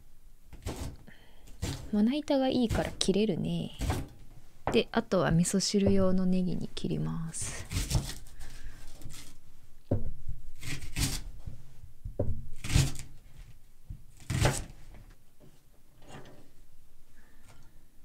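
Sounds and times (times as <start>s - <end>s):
knife slicing onion on cutting board: 0.6s - 1.0s, 1.6s - 1.9s, 7.6s - 8.3s, 12.6s - 13.1s, 14.2s - 14.8s.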